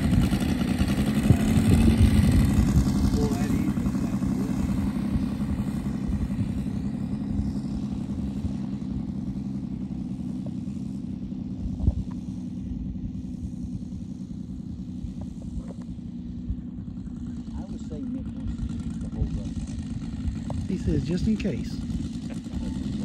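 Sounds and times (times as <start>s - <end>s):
model plane engine idling: 0.0s - 23.0s.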